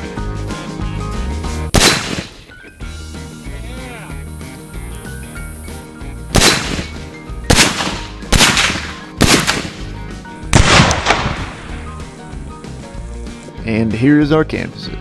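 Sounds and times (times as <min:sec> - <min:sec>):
background music: 0:00.0 - 0:15.0
loud explosions with echo: 0:01.7 - 0:02.4, 0:06.3 - 0:09.9, 0:10.5 - 0:11.9.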